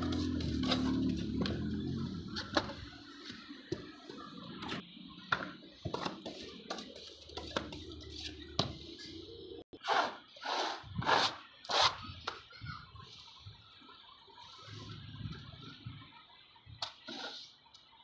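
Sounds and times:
scraper scraping plaster: 9.8s - 12.0s.

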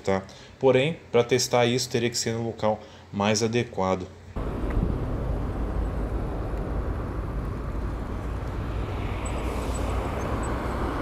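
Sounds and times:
tyre and road noise: 4.4s - 11.0s
wind rumble on microphone: 4.4s - 11.0s.

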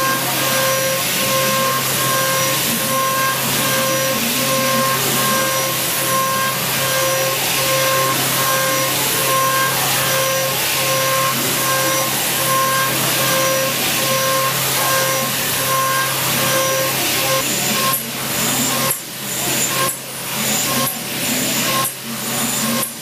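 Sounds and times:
milling machine cutting steel: 0.0s - 23.0s.

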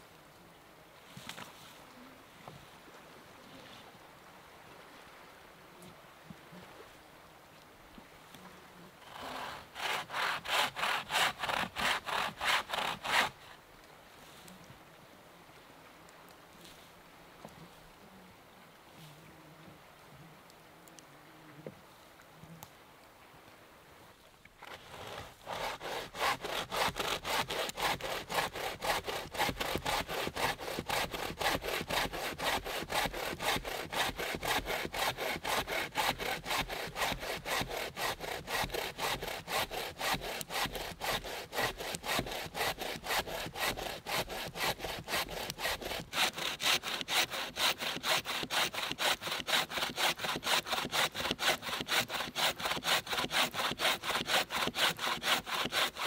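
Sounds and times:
saw rasping through log: 9.1s - 13.4s, 24.6s - 56.0s.

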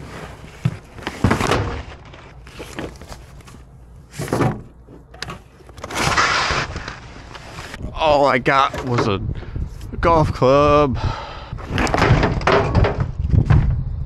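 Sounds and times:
rustling scrape: 0.0s - 7.8s.

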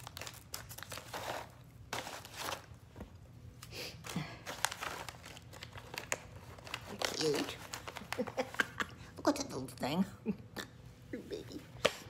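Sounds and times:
snack bag crinkling: 0.0s - 2.8s, 3.6s - 8.8s.

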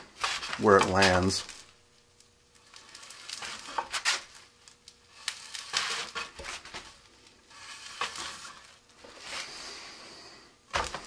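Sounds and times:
rubbing and scraping: 0.0s - 1.6s, 2.6s - 4.4s, 5.1s - 10.2s.

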